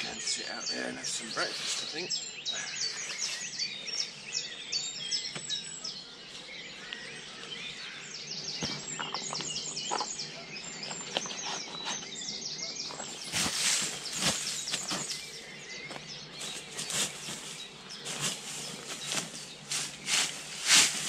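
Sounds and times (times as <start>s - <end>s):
songbirds singing: 0.0s - 21.0s
camping gear knocks and rustles: 8.6s - 12.1s, 12.9s - 21.0s.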